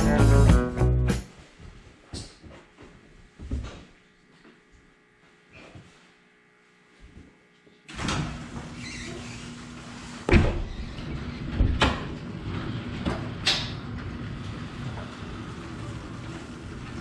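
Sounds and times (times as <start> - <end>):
garage door opener drone: 7.8 - 17.0
garage door clunking: 10.3 - 17.0.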